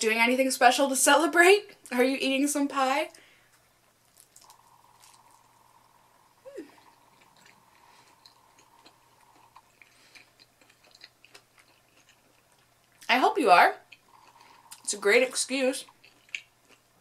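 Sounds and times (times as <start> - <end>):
quiet chewing: 3.1 - 13.1, 13.8 - 17.0.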